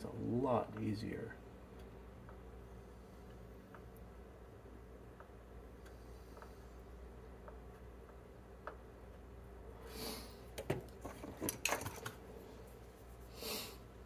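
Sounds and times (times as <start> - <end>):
low steady hum: 0.0 - 14.0
short hissing: 9.9 - 10.4, 13.3 - 13.8.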